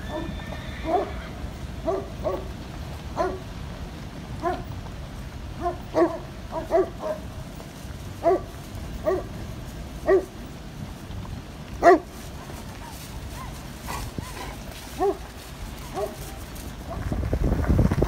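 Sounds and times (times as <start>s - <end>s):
dog barking: 0.1s - 1.1s, 1.8s - 2.5s, 3.2s - 3.4s, 4.4s - 4.7s, 5.6s - 7.3s, 8.2s - 9.3s, 10.0s - 10.3s, 11.8s - 12.1s, 14.2s - 15.2s, 15.8s - 17.0s.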